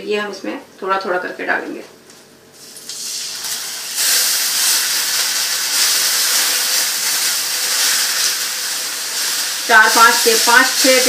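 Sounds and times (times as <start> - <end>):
milk sizzling in hot pan: 2.6 - 11.0.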